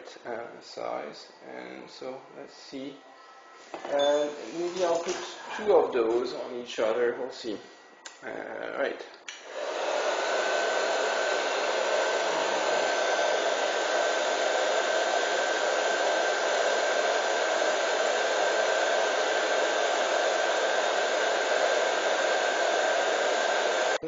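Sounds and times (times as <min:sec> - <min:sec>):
heat gun blowing with high whine: 0:09.3 - 0:24.0.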